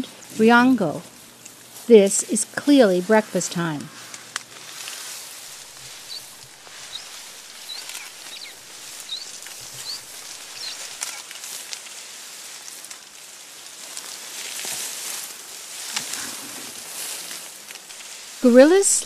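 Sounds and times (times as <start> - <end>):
steady hiss: 1.1 - 19.0
vegetation snapping and rustling: 3.9 - 18.7
high bird chirps: 5.4 - 11.2.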